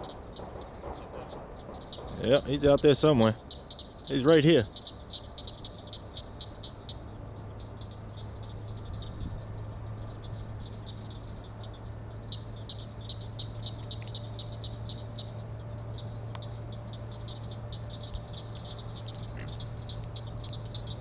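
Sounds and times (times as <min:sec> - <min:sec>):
high-pitched pulsing frog call: 0:00.0 - 0:21.0
steady low insect drone: 0:00.0 - 0:21.0.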